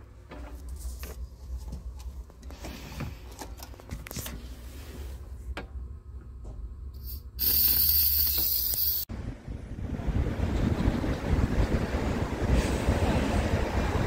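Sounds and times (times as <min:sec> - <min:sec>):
compressed air hissing from hose: 0:07.0 - 0:09.1.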